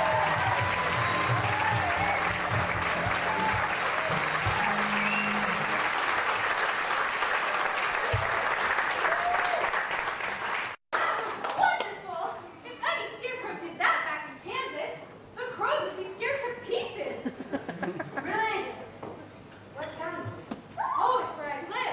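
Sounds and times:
musical accompaniment: 0:00.0 - 0:06.0
audience applauding: 0:00.0 - 0:11.7.

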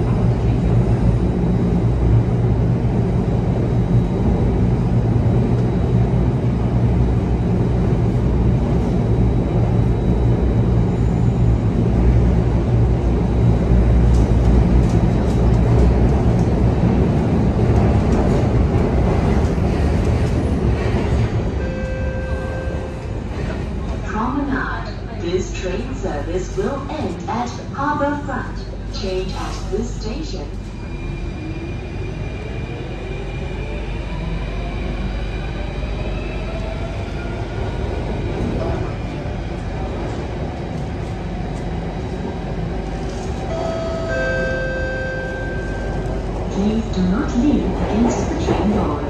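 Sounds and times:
train rumble and hum: 0:00.0 - 0:49.0
brief tone: 0:21.6 - 0:23.1, 0:43.5 - 0:46.1.

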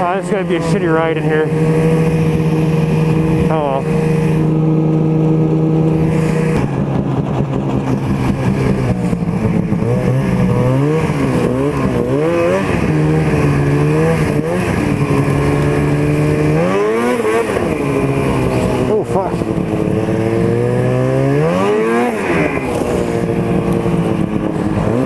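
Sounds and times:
snowmobile engine revving: 0:00.0 - 0:25.0.

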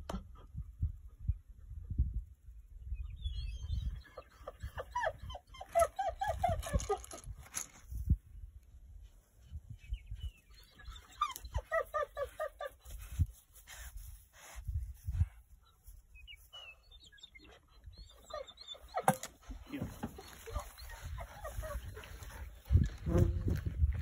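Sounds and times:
wind buffeting microphone: 0:20.0 - 0:24.0.

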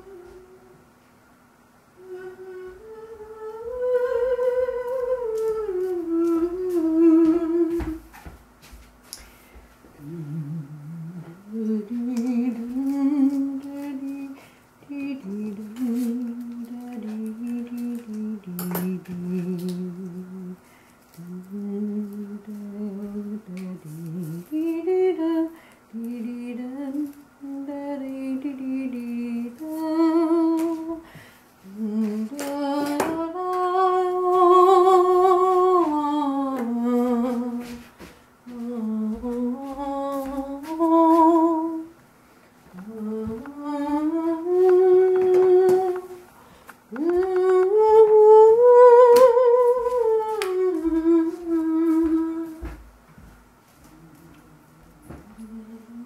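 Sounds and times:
person humming: 0:00.0 - 0:00.8, 0:02.0 - 0:08.1, 0:10.0 - 0:20.6, 0:42.7 - 0:46.3, 0:46.9 - 0:52.7, 0:53.8 - 0:56.0.

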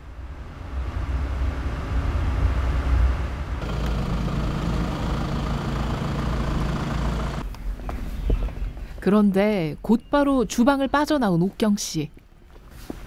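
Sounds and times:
car engine rumbling: 0:00.0 - 0:07.8.

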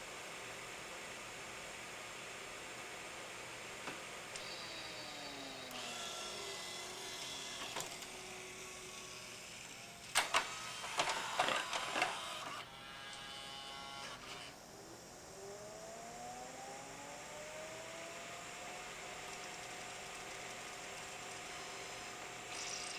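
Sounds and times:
motor whine: 0:04.4 - 0:14.6, 0:15.2 - 0:22.9.

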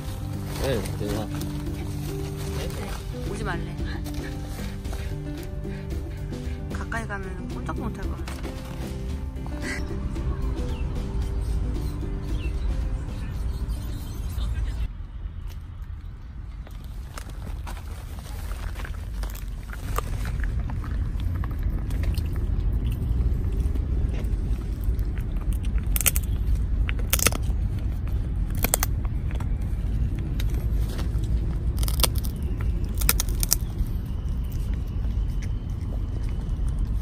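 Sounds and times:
steady low rumble: 0:00.0 - 0:37.0
dog crunching hard treat: 0:17.3 - 0:37.0.

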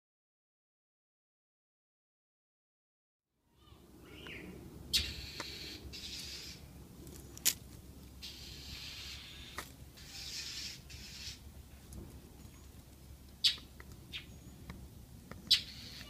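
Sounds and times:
nestlings hissing begging calls: 0:03.6 - 0:06.7, 0:08.2 - 0:11.5, 0:15.5 - 0:16.0.

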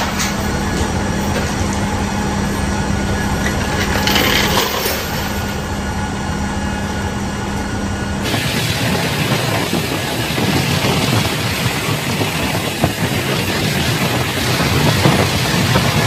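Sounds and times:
machinery hum: 0:00.0 - 0:16.0
chains rattling on metal floor: 0:03.8 - 0:05.6.

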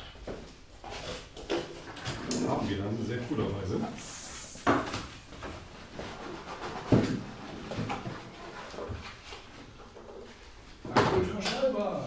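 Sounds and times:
brief hiss: 0:04.0 - 0:05.1.

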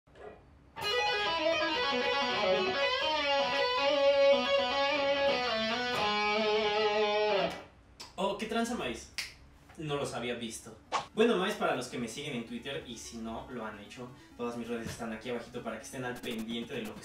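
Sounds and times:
electric guitar lead line: 0:00.8 - 0:07.6.

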